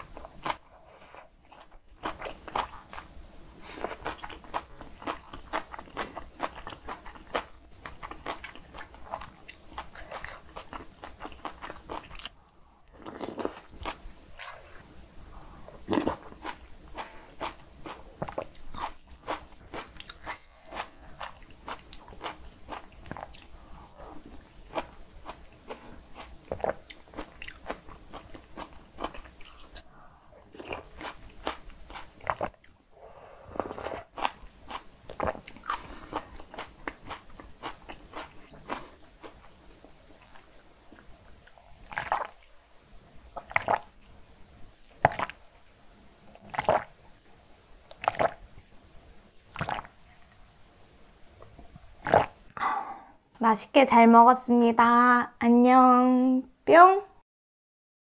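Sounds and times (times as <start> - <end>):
person chewing food: 0.0 - 32.9, 33.5 - 42.4, 43.4 - 43.9, 45.0 - 45.4, 46.3 - 46.9, 47.9 - 48.4, 49.5 - 49.9
person gulping water: 41.8 - 42.4, 43.4 - 43.8, 45.0 - 45.4, 46.4 - 46.9, 47.9 - 48.4, 49.5 - 50.0, 52.0 - 53.2.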